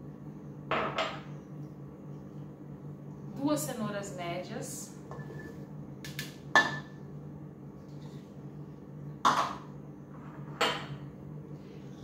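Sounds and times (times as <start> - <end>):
steady low hum: 0.0 - 12.0
dishes clattering on countertop: 0.7 - 1.3, 6.6 - 6.9, 9.2 - 11.0.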